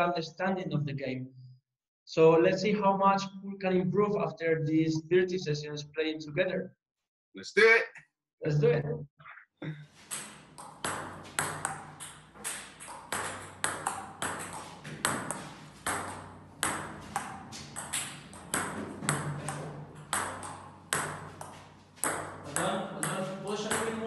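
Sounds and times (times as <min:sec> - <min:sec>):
table tennis ball clicking: 0:10.1 - 0:24.0.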